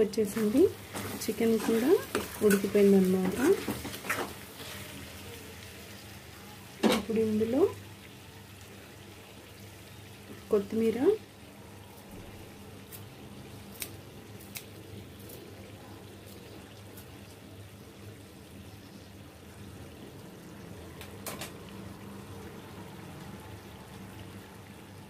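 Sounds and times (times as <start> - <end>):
curry simmering: 0.0 - 25.0.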